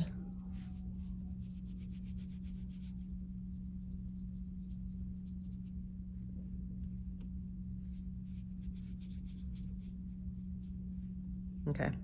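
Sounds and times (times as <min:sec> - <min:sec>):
palms rolling clay: 0:00.0 - 0:11.1
steady low hum: 0:00.0 - 0:12.0.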